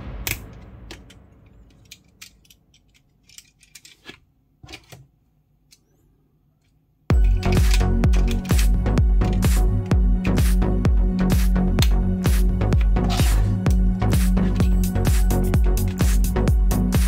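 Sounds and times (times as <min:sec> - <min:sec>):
plastic toy parts clicking: 0:01.7 - 0:05.0, 0:06.6 - 0:09.4
electronic background music: 0:07.1 - 0:17.0.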